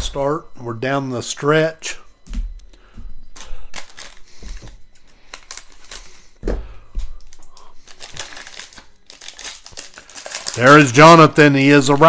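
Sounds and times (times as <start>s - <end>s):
cards clicking and plastic crinkling: 3.4s - 11.0s.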